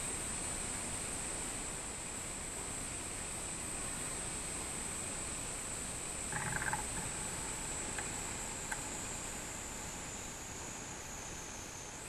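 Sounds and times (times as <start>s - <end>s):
cicadas droning: 0.0s - 12.0s
faint clicks: 6.3s - 8.9s
low animal call: 6.3s - 10.4s.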